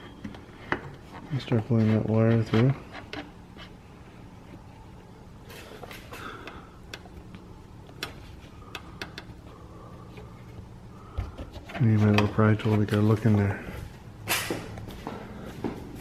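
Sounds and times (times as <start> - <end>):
soft scraping of plastic trim: 11.2 - 13.3.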